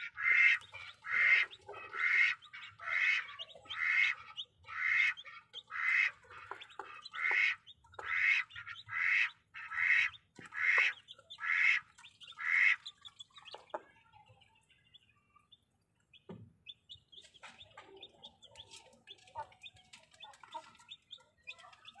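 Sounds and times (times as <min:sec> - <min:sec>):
hen squawking: 0:00.0 - 0:13.6
chicks peeping: 0:00.0 - 0:22.0.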